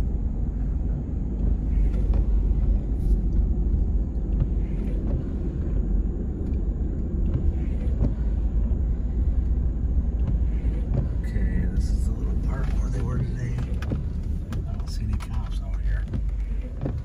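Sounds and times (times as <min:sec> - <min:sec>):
car road and engine rumble: 0:00.0 - 0:17.0
faint ticks: 0:04.1 - 0:08.8.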